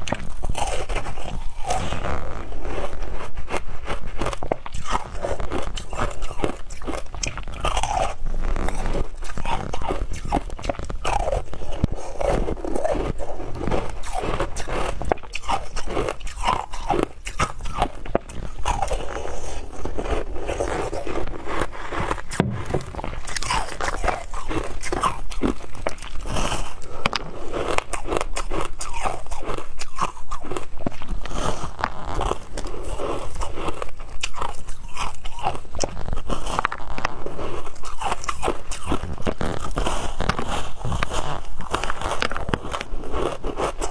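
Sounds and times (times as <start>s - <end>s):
crunching and chewing shaved ice: 0.0s - 43.9s.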